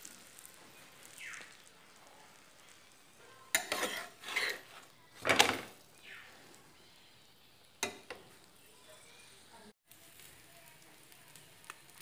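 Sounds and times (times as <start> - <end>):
spatula scraping griddle: 3.3 - 5.8.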